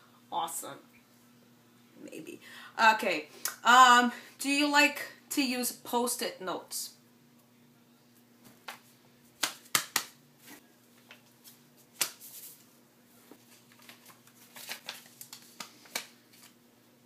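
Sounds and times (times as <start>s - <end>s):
sticky notes snapping and tapping: 9.4s - 10.1s.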